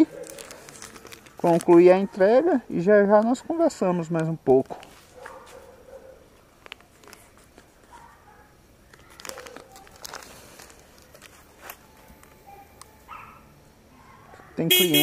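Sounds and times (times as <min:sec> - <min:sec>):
paper rustling and crinkling: 0:00.0 - 0:02.0, 0:04.7 - 0:08.2, 0:08.9 - 0:12.5.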